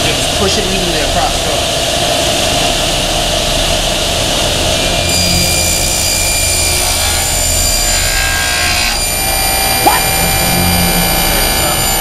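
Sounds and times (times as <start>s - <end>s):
table saw cutting wood: 4.7s - 12.0s.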